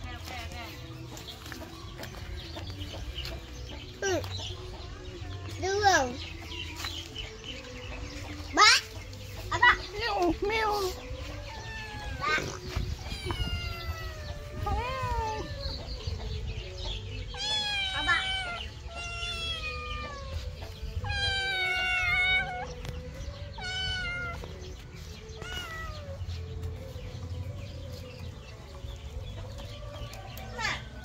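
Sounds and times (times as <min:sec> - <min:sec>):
kitten meowing: 0:11.6 - 0:15.7, 0:17.3 - 0:20.4, 0:21.0 - 0:22.7, 0:23.6 - 0:24.4, 0:25.4 - 0:26.2.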